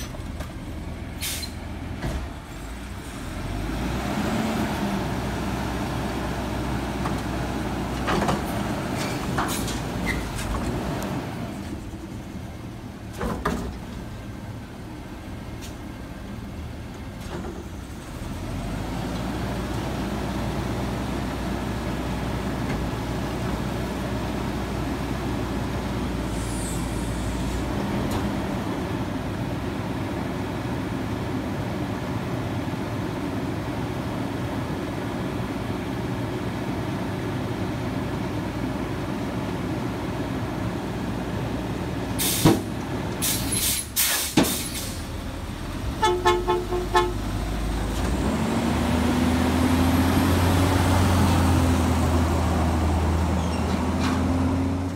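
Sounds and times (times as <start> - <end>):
garbage truck engine and hydraulics: 0.0 - 54.9
short horn toots: 46.0 - 47.2.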